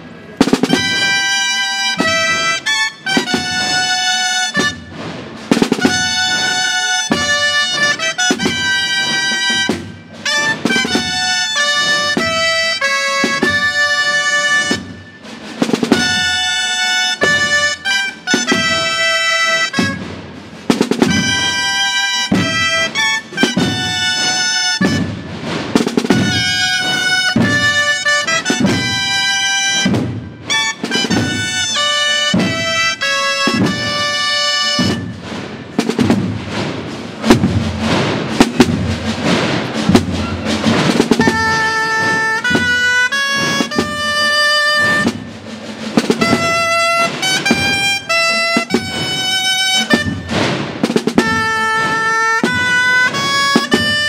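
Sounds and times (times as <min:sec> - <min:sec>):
drum beats: 0:00.0 - 0:54.0
shawms playing a melody: 0:00.0 - 0:54.0.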